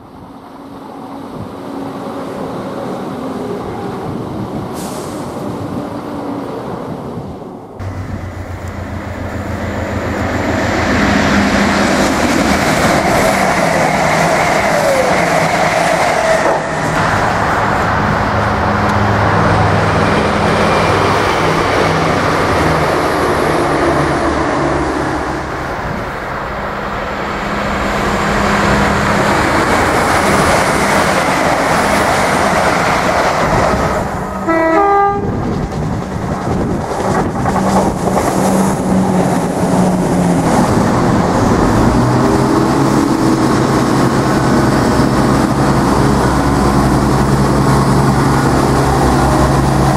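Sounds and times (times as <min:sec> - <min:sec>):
train wheel and rail noise: 0:00.0 - 0:49.9
diesel engine drone: 0:07.7 - 0:13.1, 0:16.8 - 0:31.0, 0:36.4 - 0:49.9
train horn toot: 0:34.4 - 0:35.4.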